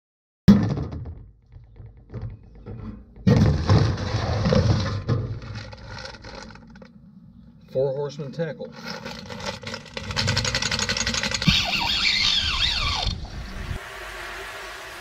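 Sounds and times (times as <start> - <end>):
plastic package scraping and rustling: 3.3 - 6.9, 8.7 - 12.4.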